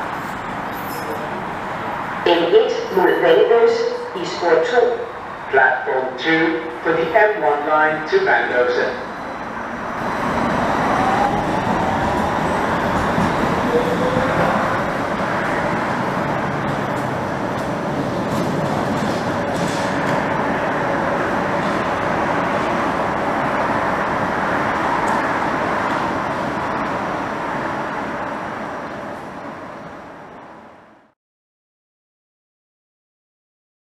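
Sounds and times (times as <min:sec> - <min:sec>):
train wheels on rails: 0:08.4 - 0:29.7.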